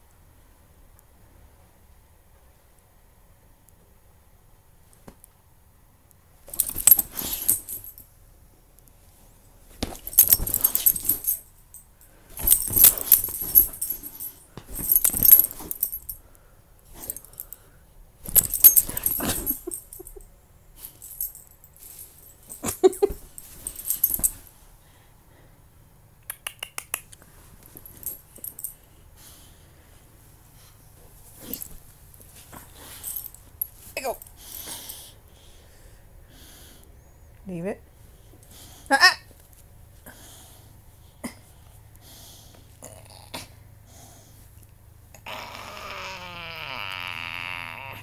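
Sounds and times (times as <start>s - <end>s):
dog toy rattling clatter: 6.5s - 8.0s, 9.9s - 11.4s, 12.3s - 16.2s, 18.2s - 20.2s, 20.8s - 24.4s.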